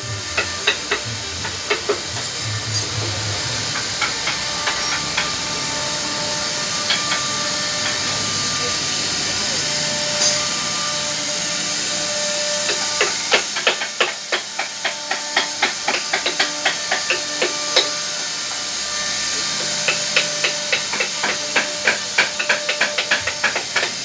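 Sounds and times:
rapid hammer strikes: 0.0s - 5.6s, 12.6s - 18.6s, 19.5s - 24.0s
steady hiss: 0.0s - 24.0s.

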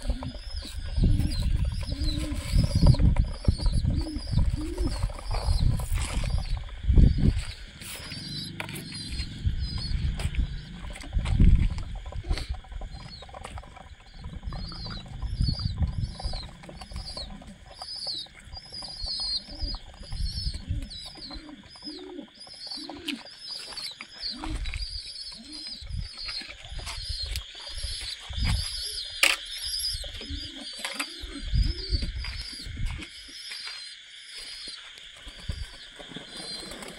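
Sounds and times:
wings flapping: 0.0s - 24.7s, 35.2s - 36.9s
pigeons cooing: 0.0s - 33.8s, 34.4s - 36.9s
high chirping: 0.0s - 34.9s.

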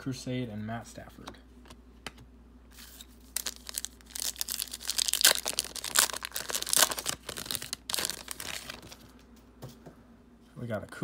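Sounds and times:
plastic wrapper tearing and crinkling: 2.8s - 9.0s.

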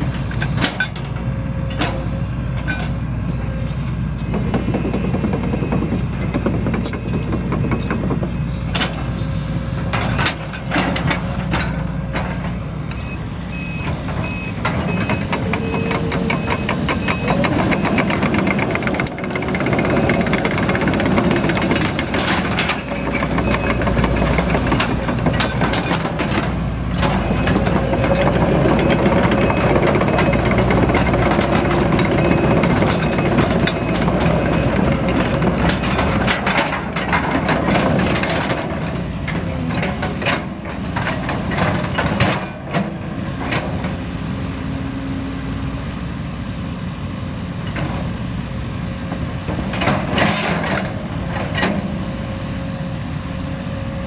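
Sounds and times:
excavator diesel engine running: 0.0s - 54.0s
sharp knocks and clanks: 4.3s - 9.1s
travel alarm beeps: 4.6s - 6.0s, 12.9s - 18.9s, 22.8s - 24.0s, 27.2s - 30.6s, 31.7s - 35.0s.

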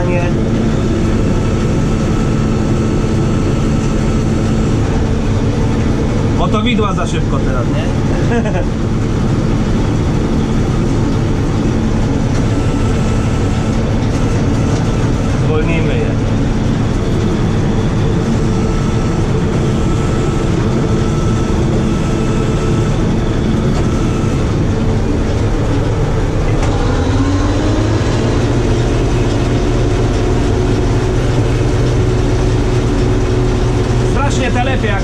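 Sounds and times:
combine harvester engine running: 0.0s - 35.0s
rising tone: 16.9s - 33.5s.

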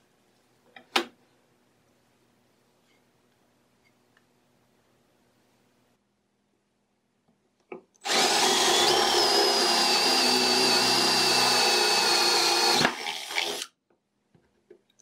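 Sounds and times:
power drill drilling into wood: 8.0s - 13.7s.

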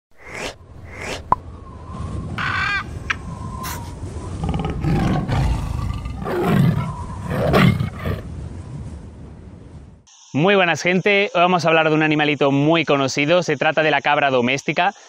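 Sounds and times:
tiger roaring and growling: 3.6s - 8.3s.

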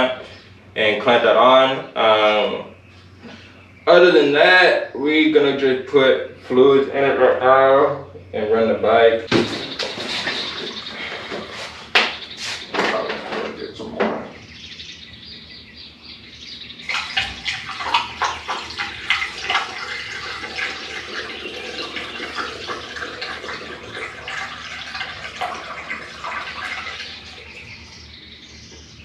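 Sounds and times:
liquid pouring through funnel: 16.9s - 27.6s.

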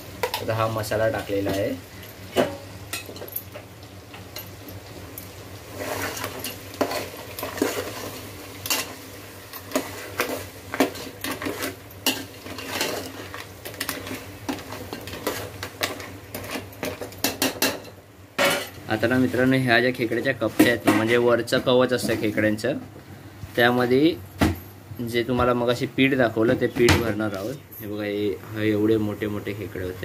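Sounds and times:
ladle scraping against pot: 9.6s - 17.7s.

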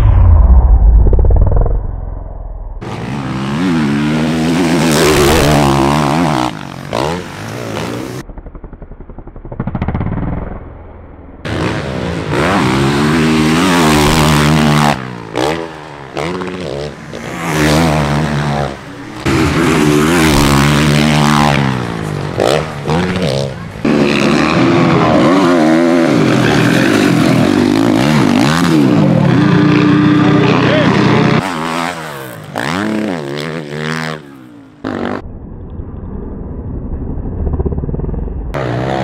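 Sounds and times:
dirt bike engines revving: 2.8s - 8.2s, 11.4s - 35.2s, 37.8s - 39.0s.

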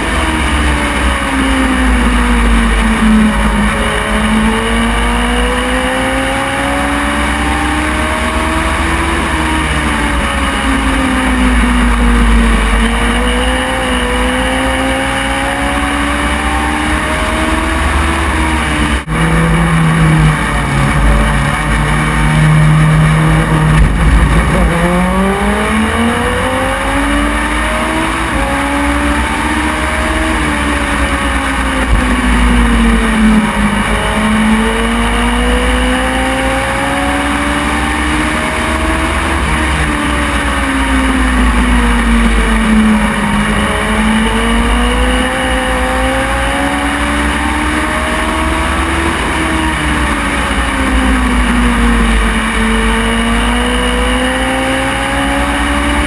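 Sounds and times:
race car engine revving: 0.0s - 56.0s
low rumble: 18.8s - 26.3s.

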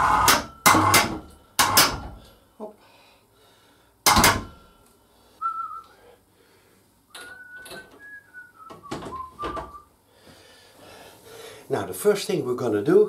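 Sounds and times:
sharp knocks from handling things: 0.3s - 2.2s, 4.0s - 4.6s
man whistling a tune: 5.4s - 6.0s, 7.1s - 9.9s.

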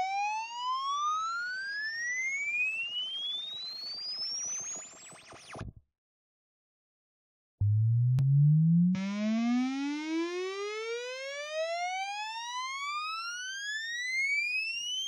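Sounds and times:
rising distorted sine sweep: 7.6s - 9.3s.

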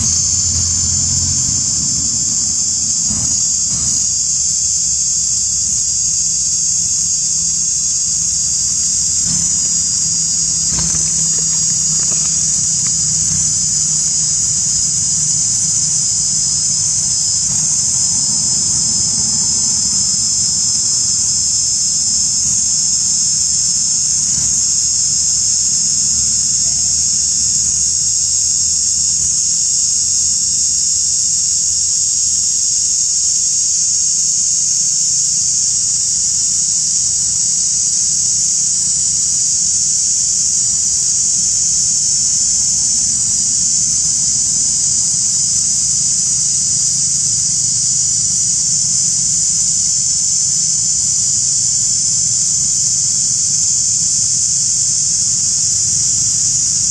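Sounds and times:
high-pitched insect chorus: 0.0s - 56.9s.

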